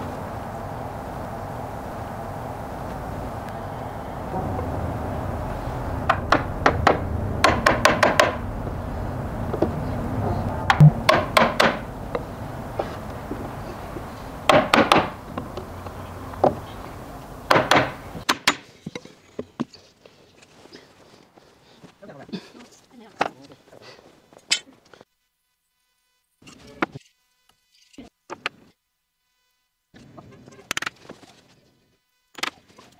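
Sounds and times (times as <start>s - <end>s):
low rumble: 0.0s - 18.2s
hammer knocking on wood: 6.1s - 8.4s, 10.7s - 12.2s, 14.5s - 15.2s, 17.5s - 18.6s.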